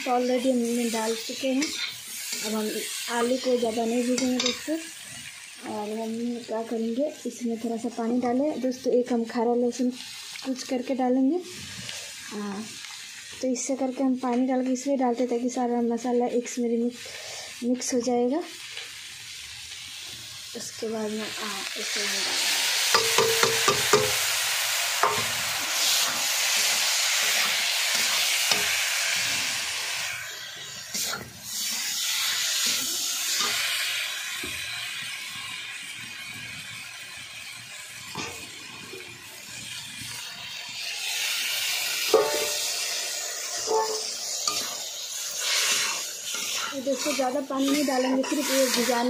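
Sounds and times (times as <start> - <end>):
water sizzling in a hot pan: 0.0 - 49.0
metal spatula scraping a pan: 0.6 - 5.3, 22.9 - 24.3, 25.0 - 29.5, 30.2 - 33.7, 42.0 - 42.8, 43.5 - 49.0.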